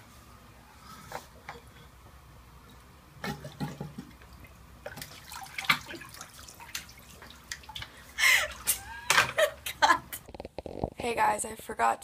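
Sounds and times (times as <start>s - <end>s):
water sloshing and dripping in sink: 2.6s - 9.4s.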